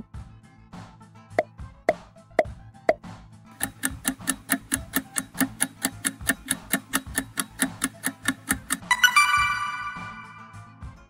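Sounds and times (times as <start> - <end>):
clock ticking: 3.6 - 10.1.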